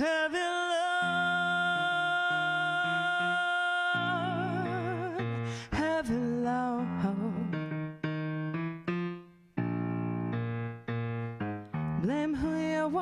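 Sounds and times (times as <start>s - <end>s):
woman singing: 0.0s - 7.8s, 12.0s - 13.0s
keyboard piano chords: 0.8s - 13.0s.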